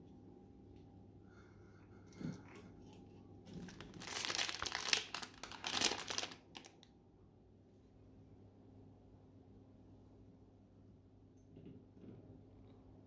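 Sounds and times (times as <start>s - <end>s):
crinkling and rustling: 2.4s - 6.9s.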